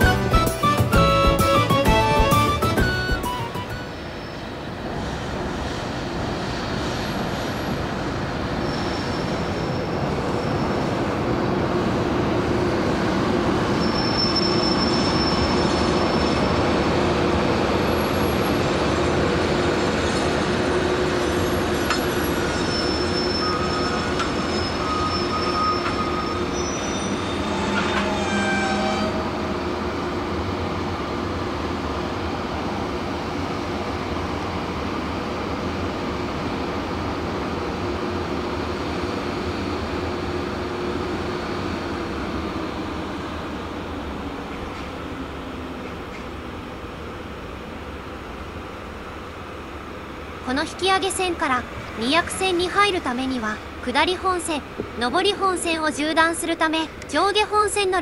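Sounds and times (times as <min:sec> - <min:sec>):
locomotive cooling blowers humming: 0:00.0 - 0:08.2
train wheels squealing on rails: 0:00.0 - 0:11.8, 0:12.5 - 0:30.1.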